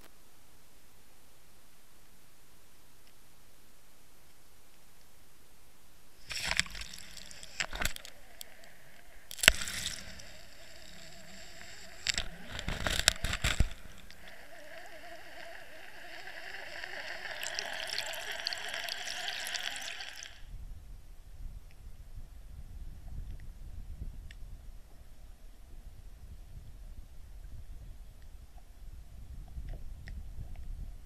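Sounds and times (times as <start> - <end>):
rushing gurgling water: 6.2 - 20.4.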